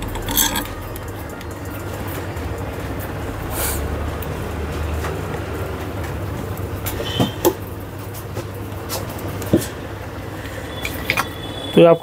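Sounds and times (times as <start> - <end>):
hand tools clicking on metal parts: 0.0 - 1.6.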